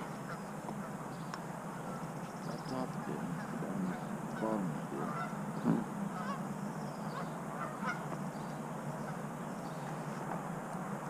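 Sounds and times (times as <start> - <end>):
geese honking: 0.0 - 8.3.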